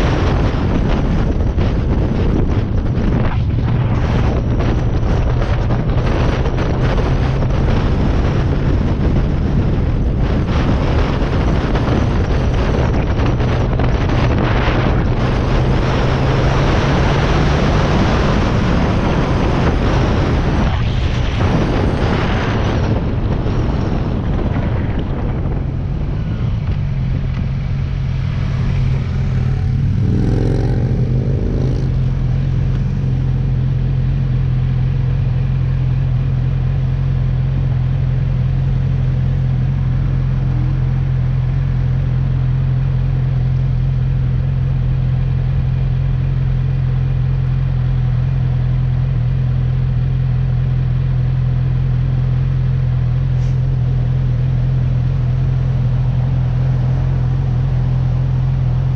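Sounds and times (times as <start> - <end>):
wind noise on microphone: 0.0 - 50.3
motorcycle engine running: 0.0 - 58.9.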